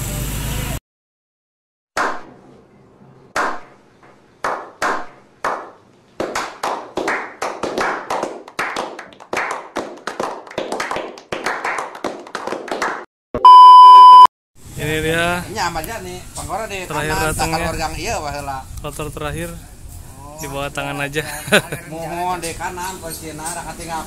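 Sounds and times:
men clapping: 4.4s - 13.1s
test-tone beep: 13.4s - 14.3s.

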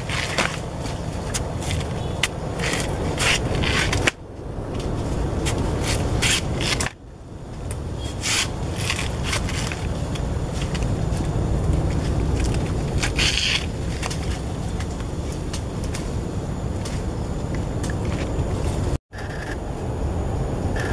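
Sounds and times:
machete tearing fibrous trunk: 0.0s - 4.2s, 4.8s - 7.0s, 8.1s - 10.9s
steady low rumble: 0.0s - 20.9s.

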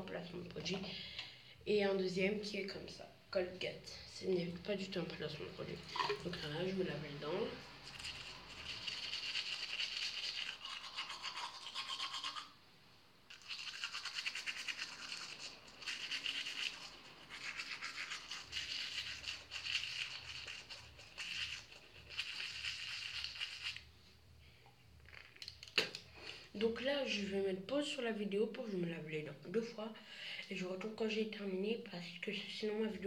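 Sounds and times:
teeth brushing with toothbrush: 7.6s - 12.6s, 13.3s - 24.0s.

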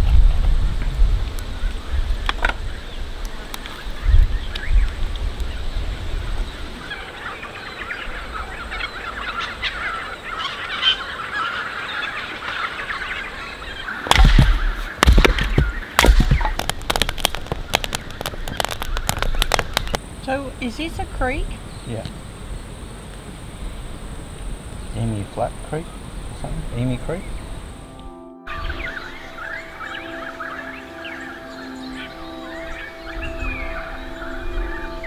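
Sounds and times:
wind gusts on microphone: 0.0s - 10.3s, 13.3s - 27.9s
birds chattering and calling: 1.4s - 35.0s
wood fire crackling and popping: 14.0s - 20.4s.

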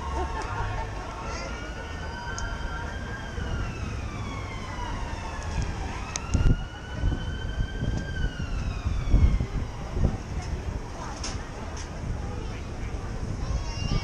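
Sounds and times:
emergency vehicle siren wailing: 0.0s - 10.6s
city traffic rumble: 0.0s - 14.0s.

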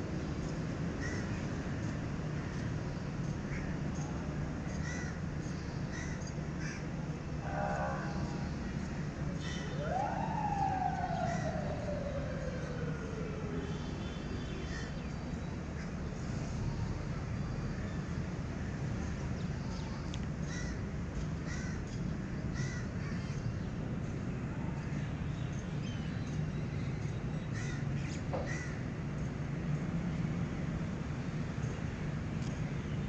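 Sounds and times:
birds calling: 3.2s - 13.5s.

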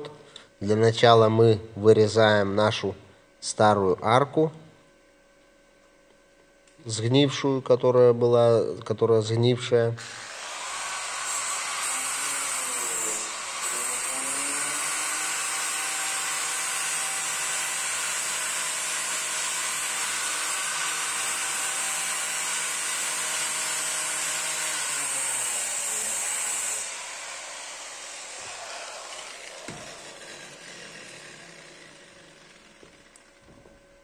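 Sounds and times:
angle grinder cutting sheet metal: 10.0s - 33.4s.

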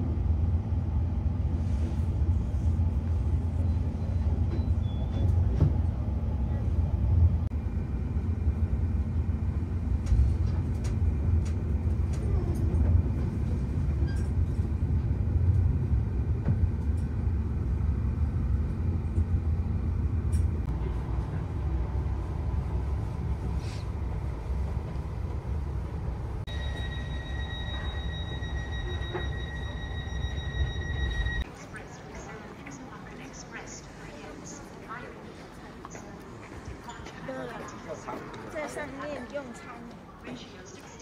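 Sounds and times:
train rumble: 0.0s - 41.0s
high-pitched tone: 26.5s - 31.4s.

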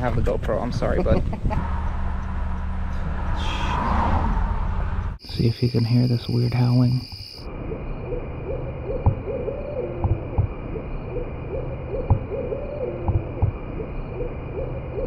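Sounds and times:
low thumps: 8.9s - 10.9s, 12.0s - 14.0s.

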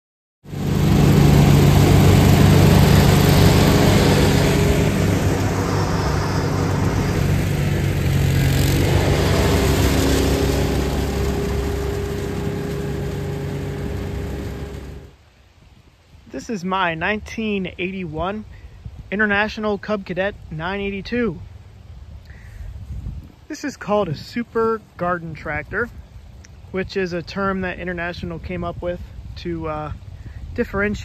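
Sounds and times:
garden tractor engine running: 0.5s - 15.2s
leaf vacuum engine running: 0.5s - 15.2s.

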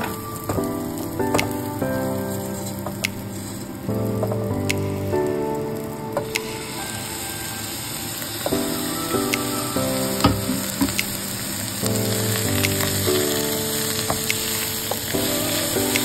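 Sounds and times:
background music: 0.0s - 16.0s
rice sizzling in a pot: 6.3s - 16.0s.

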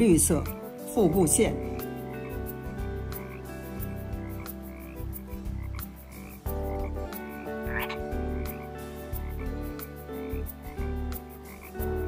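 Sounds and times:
frogs croaking in chorus: 0.7s - 12.0s.

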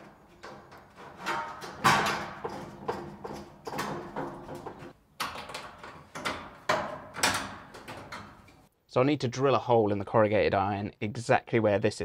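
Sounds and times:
corrugated iron scraping and clanking: 0.0s - 8.7s.

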